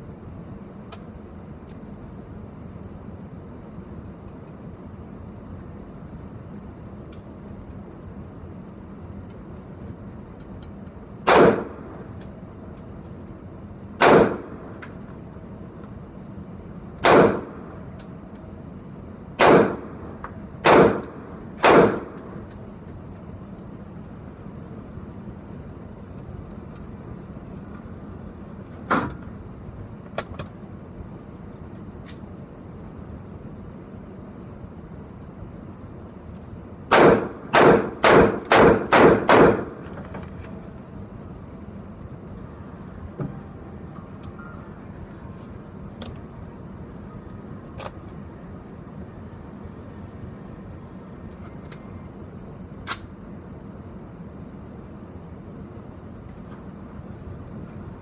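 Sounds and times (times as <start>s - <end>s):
rifle gunshots: 11.3s - 11.8s, 14.0s - 14.7s, 17.0s - 17.6s, 19.4s - 20.0s, 20.6s - 22.2s, 36.9s - 39.8s.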